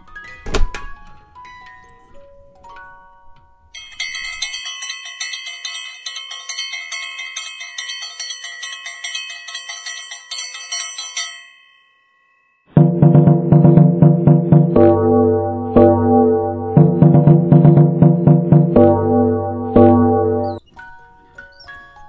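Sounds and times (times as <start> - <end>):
bell-like chimes: 0.0 - 12.8, 19.8 - 22.0.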